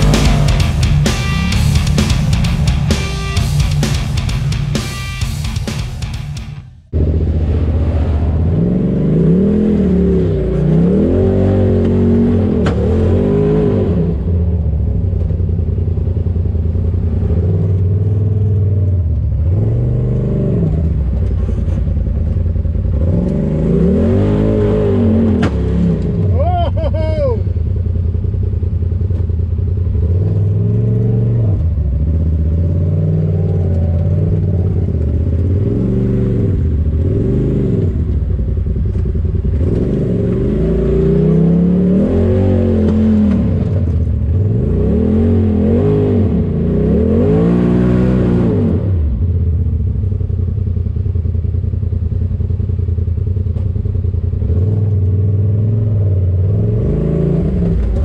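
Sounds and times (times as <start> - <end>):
utility vehicle engine revving: 0.0 - 51.1, 53.4 - 58.0.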